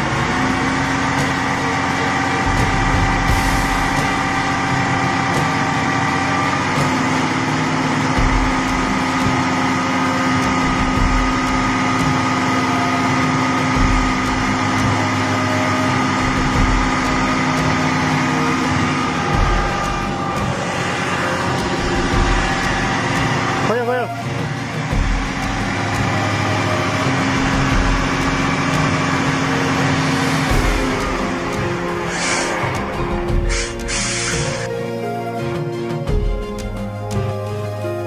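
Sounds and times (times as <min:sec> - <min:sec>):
diesel truck engine running: 0:00.0 - 0:38.0
low thumps: 0:16.2 - 0:23.7.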